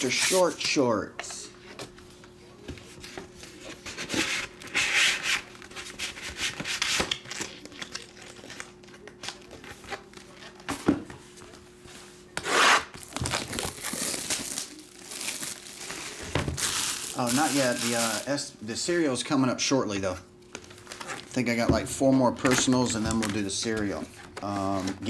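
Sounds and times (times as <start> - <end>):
trading cards rustling: 13.0 - 18.5
card packaging swishes: 15.2 - 18.3.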